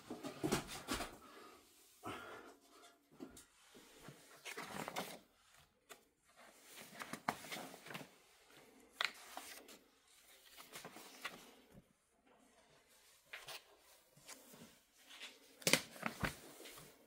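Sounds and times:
paper pages being turned: 4.0 - 11.6, 13.2 - 17.0.

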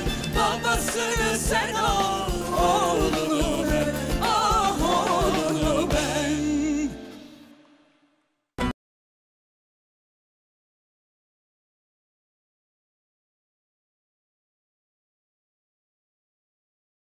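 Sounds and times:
live band playing pop song: 0.0 - 7.5
person singing: 0.4 - 7.5.

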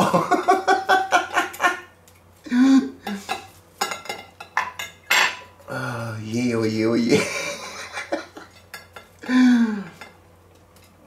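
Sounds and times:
metal utensils and dishes clattering: 3.2 - 5.5.

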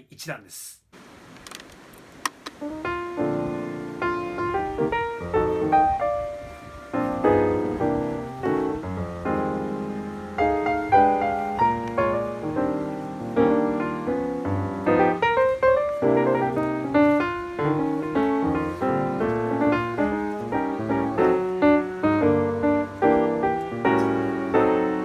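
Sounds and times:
piano music: 2.6 - 25.0.

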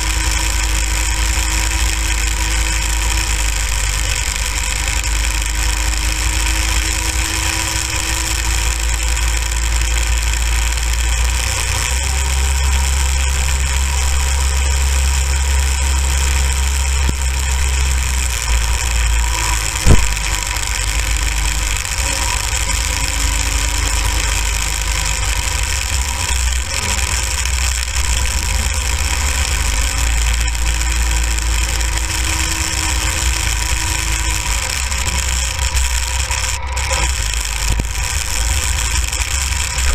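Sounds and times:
go-kart engine rumble: 0.0 - 39.9
sharp knock: 19.8 - 20.2.

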